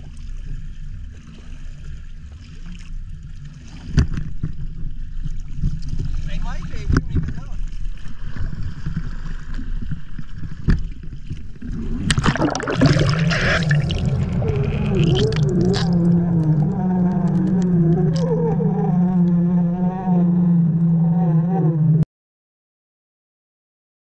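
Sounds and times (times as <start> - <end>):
outboard motor heard underwater: 0.0 - 22.0
splash into water: 11.6 - 16.1.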